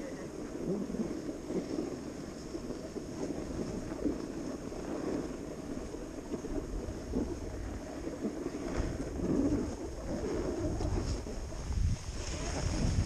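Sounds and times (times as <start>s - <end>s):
snowboard scraping on snow: 0.0s - 13.0s
wind on microphone: 0.0s - 13.0s.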